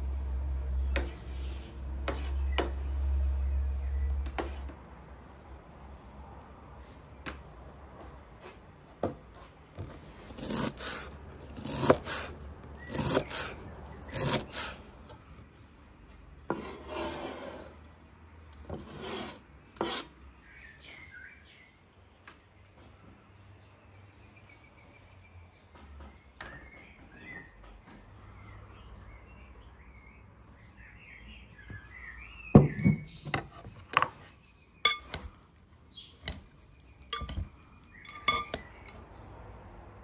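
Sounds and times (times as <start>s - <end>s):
rasping scraping strokes: 10.2s - 14.9s, 16.5s - 17.8s, 18.8s - 20.1s.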